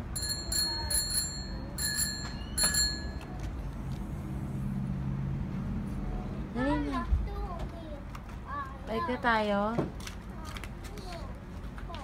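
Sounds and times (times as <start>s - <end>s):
bicycle bell ringing: 0.0s - 3.3s.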